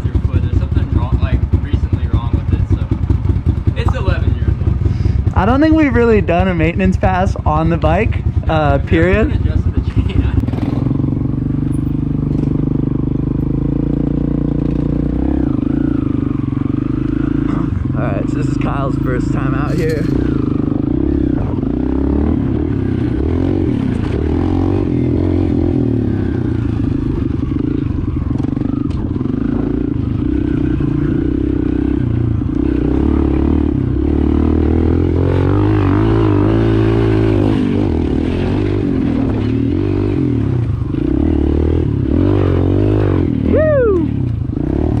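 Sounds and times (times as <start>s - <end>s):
pit bike engine revving: 0.0s - 45.0s.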